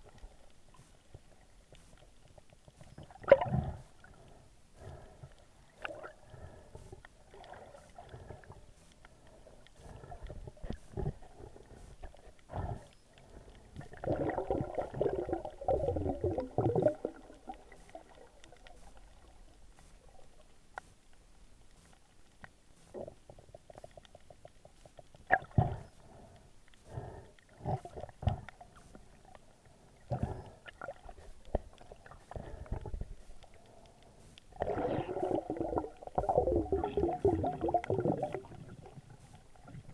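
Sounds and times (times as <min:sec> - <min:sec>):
underwater bubbling: 0:00.0 - 0:39.9
underwater knocks and clicks: 0:27.6 - 0:29.0, 0:30.1 - 0:39.9.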